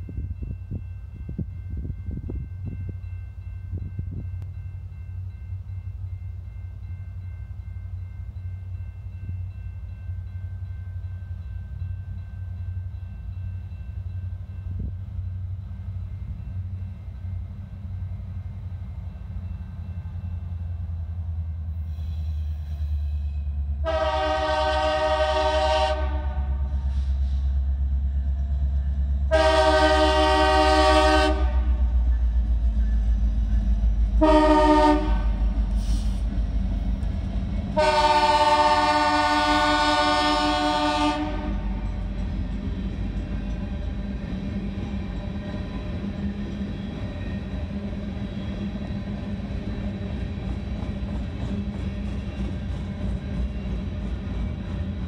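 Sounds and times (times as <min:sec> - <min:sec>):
train low rumble: 0:00.0 - 0:55.0
locomotive air horn blasts: 0:23.8 - 0:27.4, 0:29.3 - 0:32.0, 0:34.2 - 0:36.2, 0:37.8 - 0:41.8.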